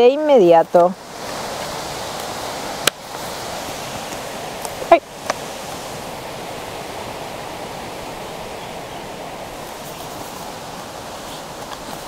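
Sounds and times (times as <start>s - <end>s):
outdoor background hiss: 0.0s - 12.0s
paper pages crackling: 9.6s - 12.0s.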